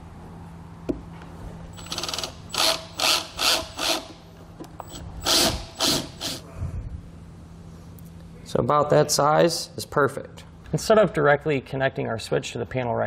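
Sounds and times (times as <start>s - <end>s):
cordless drill drilling plastic: 1.8s - 4.1s, 4.8s - 6.4s.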